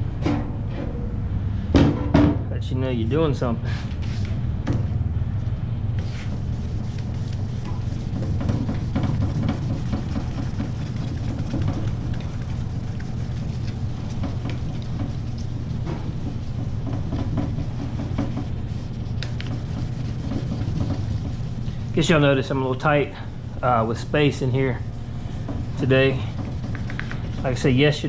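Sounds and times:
steady low hum: 0.0 - 28.0
wet sandpaper scratching strokes: 6.0 - 28.0.

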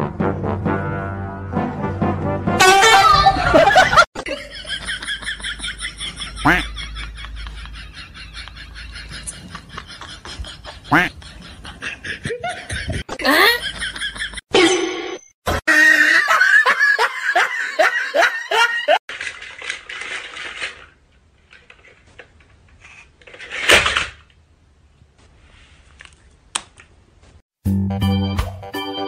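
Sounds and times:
person laughing hard: 3.2 - 14.4, 15.7 - 19.0.

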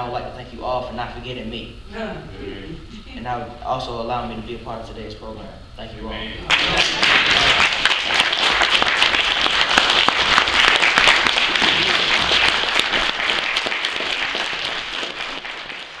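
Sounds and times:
crowd applauding: 6.5 - 16.0.

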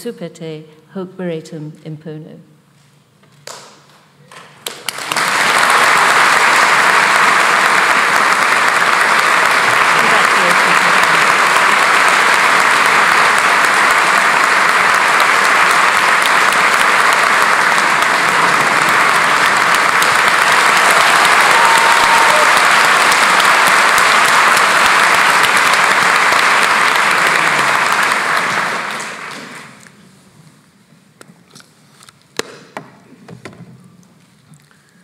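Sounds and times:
audience applauding: 4.6 - 29.9.

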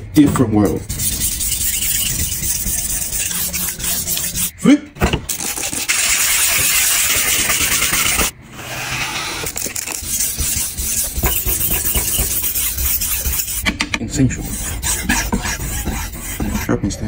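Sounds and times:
rubbing on wet stone: 0.6 - 4.5, 9.8 - 16.8.

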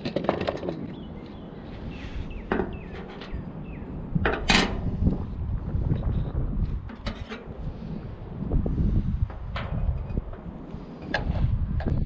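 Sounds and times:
hardware clattering on metal roof: 0.0 - 1.1, 2.4 - 5.0, 6.8 - 7.7, 9.2 - 12.0.

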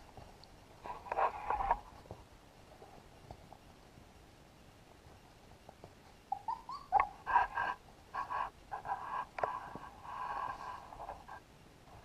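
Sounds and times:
puppies whimpering and squealing: 6.3 - 7.6.

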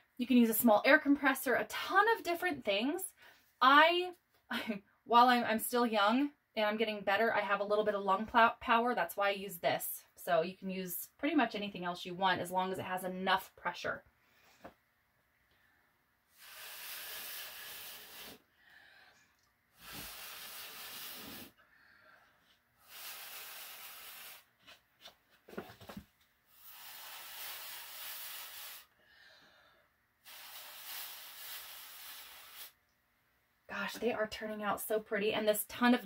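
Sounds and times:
breath blown through a tube: 16.3 - 19.2, 19.8 - 21.6, 22.8 - 24.5, 26.5 - 29.6, 30.2 - 32.8.

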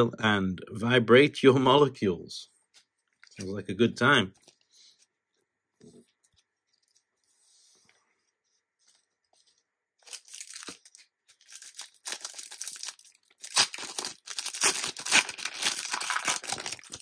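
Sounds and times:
wrapper tearing and crinkling: 10.0 - 17.0.

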